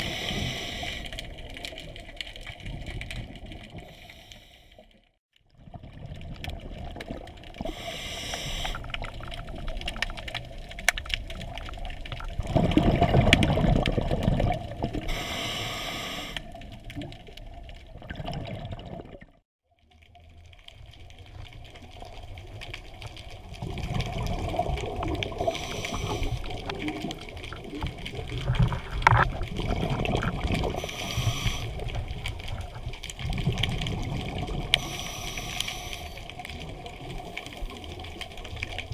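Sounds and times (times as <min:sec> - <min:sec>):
regulator hissing inhalations: 0:00.0 - 0:01.1, 0:07.7 - 0:08.8, 0:15.1 - 0:16.5, 0:25.4 - 0:26.5, 0:30.8 - 0:31.8, 0:34.8 - 0:36.2
bubbling exhalations: 0:12.2 - 0:15.3, 0:17.9 - 0:19.4, 0:23.6 - 0:37.4.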